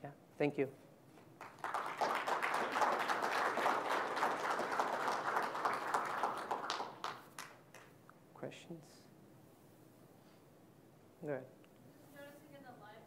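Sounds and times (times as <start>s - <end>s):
audience applause: 1.4s - 7.9s.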